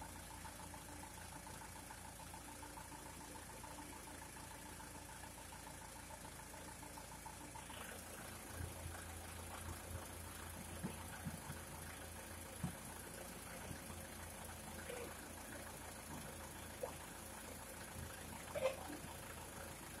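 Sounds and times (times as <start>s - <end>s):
engine idling: 0.0s - 20.0s.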